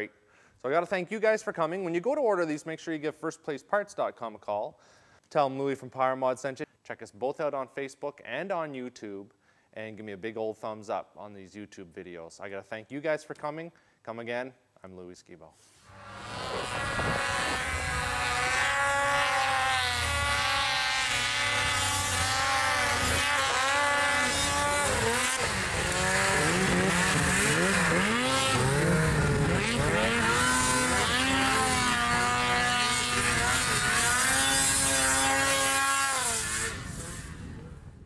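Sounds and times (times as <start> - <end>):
vehicle engines revving hard: 15.9 - 37.5.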